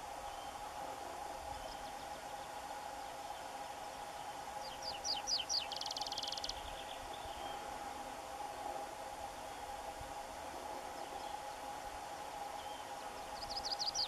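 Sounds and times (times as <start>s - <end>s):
bird singing with trill: 4.6s - 7.6s, 12.6s - 14.0s.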